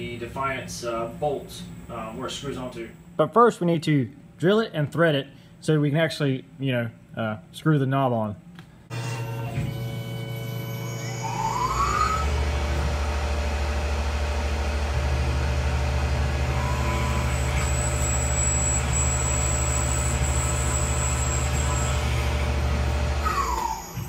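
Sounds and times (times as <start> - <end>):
mill spindle whine and hum: 8.8 - 24.0
faint high whine: 8.9 - 24.0.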